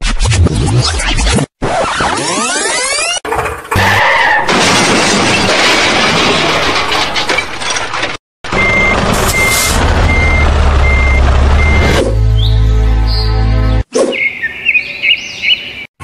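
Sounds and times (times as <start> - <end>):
reversing alarm beeps: 8.6 - 12.0.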